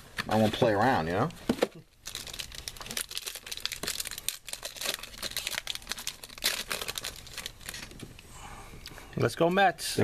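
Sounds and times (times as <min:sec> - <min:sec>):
foil wrapper crinkling: 0:01.9 - 0:08.1.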